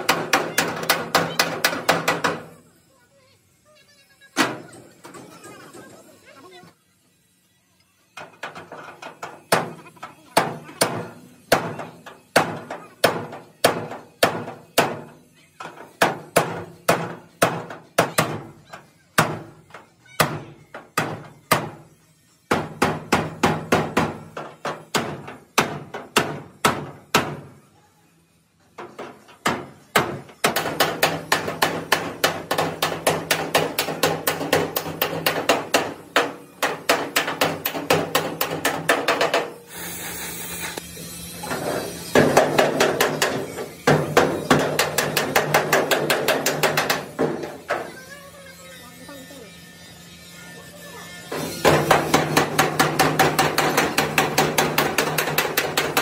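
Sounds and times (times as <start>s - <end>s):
hammer striking sheet metal: 0.0s - 2.5s, 10.4s - 21.8s, 22.5s - 27.5s, 28.8s - 39.6s, 41.4s - 47.9s, 51.3s - 56.0s.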